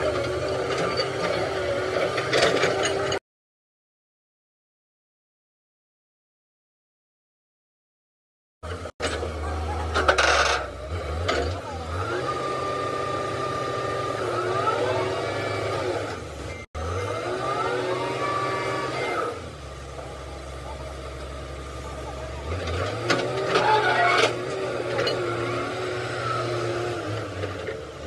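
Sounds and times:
excavator engine running: 0:00.0 - 0:03.2, 0:08.6 - 0:28.0
whining tones: 0:22.6 - 0:28.0.

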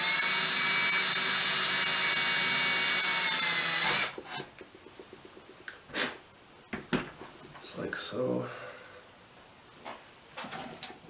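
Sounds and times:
cordless drill boring into wood: 0:00.0 - 0:04.2.

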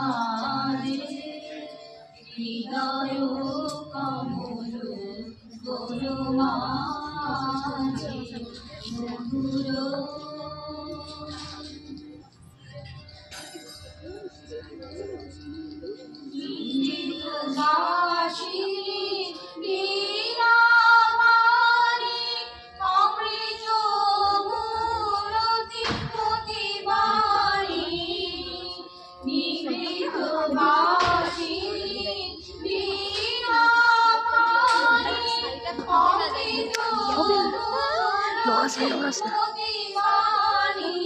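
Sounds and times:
music: 0:00.0 - 0:41.0.

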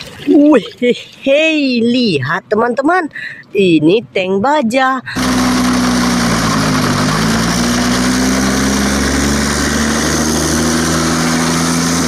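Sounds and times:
diesel engine droning: 0:05.0 - 0:12.0.

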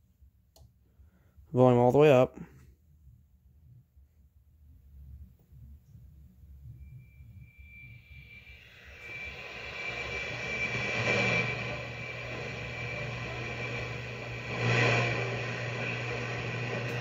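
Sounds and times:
steady low hum: 0:02.4 - 0:17.0.

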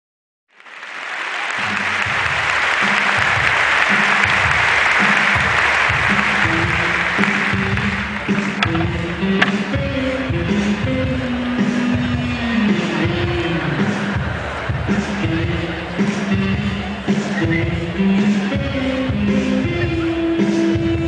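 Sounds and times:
audience applauding: 0:00.5 - 0:09.8
music with pulsing bass line: 0:05.4 - 0:20.1.

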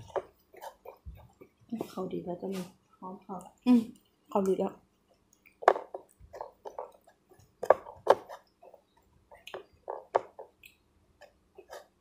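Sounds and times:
wet chewing and lip-smacking: 0:08.4 - 0:11.4.

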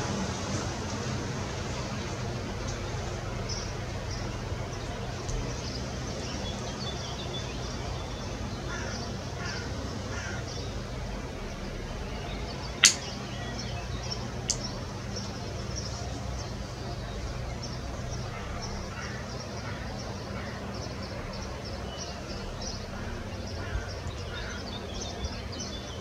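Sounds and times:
sharp click: 0:12.8 - 0:13.1.

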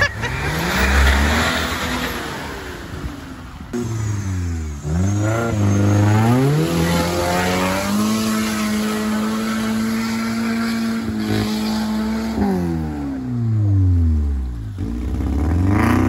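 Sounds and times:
vehicle engine revving: 0:03.7 - 0:16.0.

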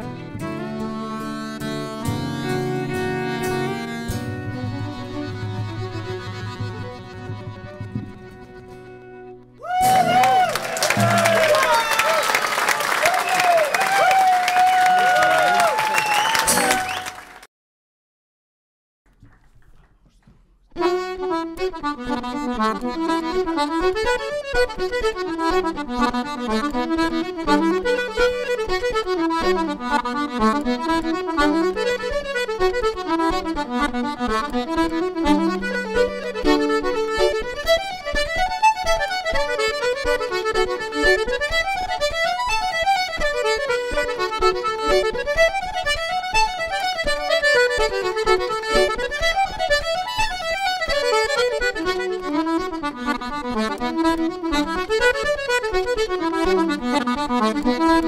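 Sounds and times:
fiddle and accordion tune: 0:00.0 - 0:10.4, 0:20.8 - 0:58.0.

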